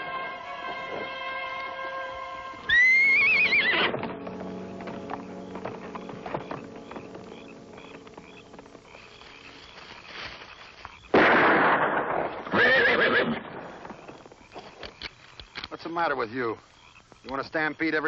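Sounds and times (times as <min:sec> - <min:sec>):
film score music: 0:00.0 - 0:09.7
echoing rifle shots: 0:11.1 - 0:12.7.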